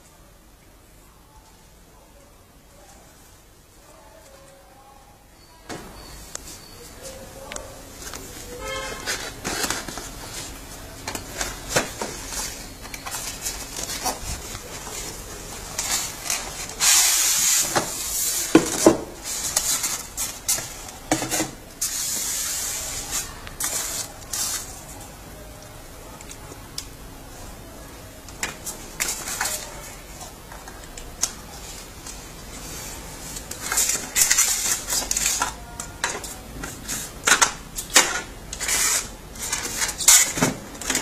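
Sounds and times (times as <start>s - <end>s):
cardboard and foam packaging scraping: 8.0s - 24.8s.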